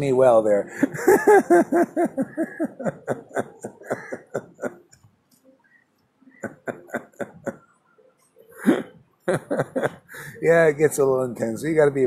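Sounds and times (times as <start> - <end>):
man laughing: 0.7 - 4.8, 6.4 - 7.6, 8.6 - 10.4.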